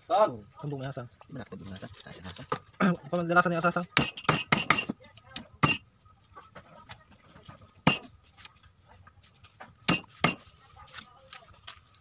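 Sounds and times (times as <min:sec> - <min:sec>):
knife chopping on wooden block: 0:04.0 - 0:05.0, 0:05.6 - 0:05.8, 0:07.8 - 0:08.1, 0:09.9 - 0:10.4.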